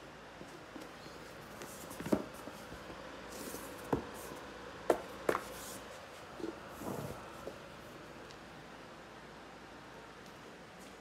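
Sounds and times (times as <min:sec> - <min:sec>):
fingers scuffing foam mat: 0:01.2 - 0:07.6.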